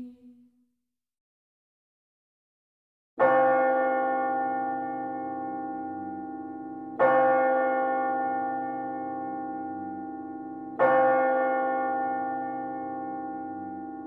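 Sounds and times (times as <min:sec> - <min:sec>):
church bell tolling: 0:03.2 - 0:14.0.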